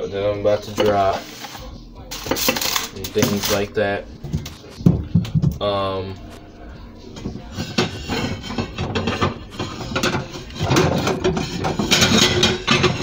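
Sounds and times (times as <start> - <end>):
plates scraping and clicking: 0.6 - 5.6, 7.1 - 13.0
foil rustling: 1.0 - 3.8.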